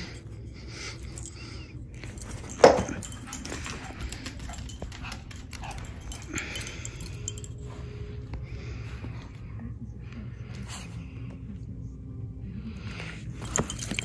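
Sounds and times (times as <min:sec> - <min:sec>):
claws clicking on floor: 0:02.1 - 0:07.5.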